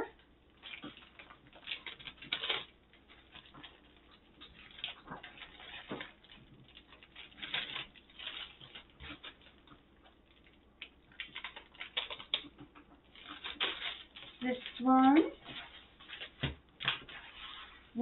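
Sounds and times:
plastic packaging crinkling: 0.0 - 18.0.

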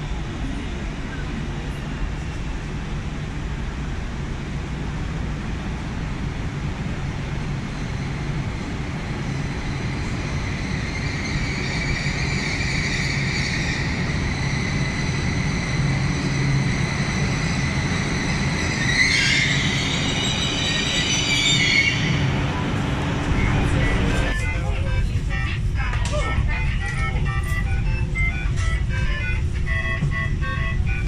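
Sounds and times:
train low rumble: 0.0 - 31.0
high brake squeal: 17.1 - 22.3.

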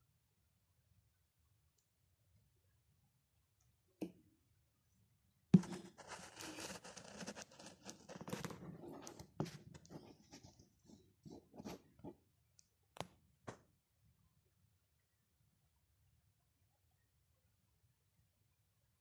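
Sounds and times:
rustling and crackling: 5.6 - 12.2.

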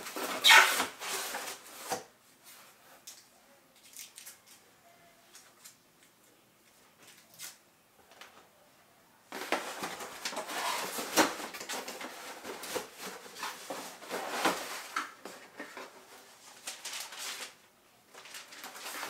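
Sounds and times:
cardboard box rustling and scraping: 9.4 - 16.0.

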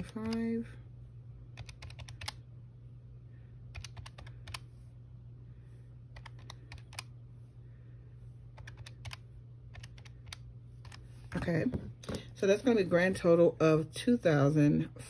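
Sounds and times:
calculator keys clicking: 1.6 - 2.4, 3.7 - 4.7, 6.2 - 7.1, 8.6 - 11.0.

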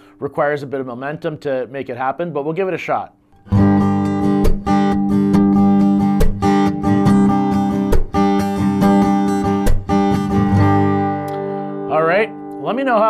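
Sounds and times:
acoustic guitar strumming: 3.4 - 13.0
percussive guitar string clack: 4.4 - 5.0, 6.1 - 6.8, 7.8 - 8.4, 9.6 - 10.1.

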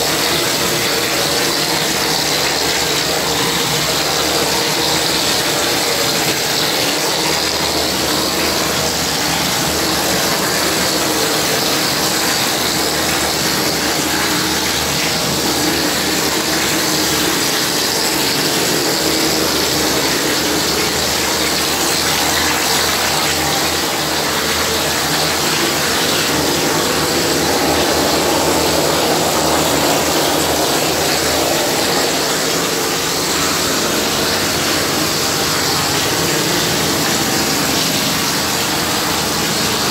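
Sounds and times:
pump running: 0.0 - 39.9.

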